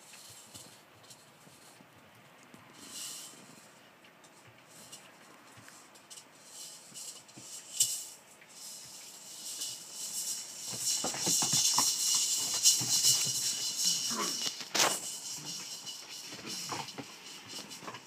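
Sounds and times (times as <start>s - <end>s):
puppies rustling on sheets: 0.0s - 18.0s
paws scrabbling: 10.4s - 18.0s.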